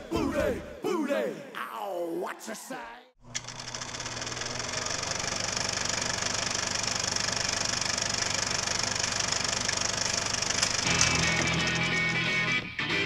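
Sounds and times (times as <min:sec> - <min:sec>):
film projector clattering: 0:03.3 - 0:12.4.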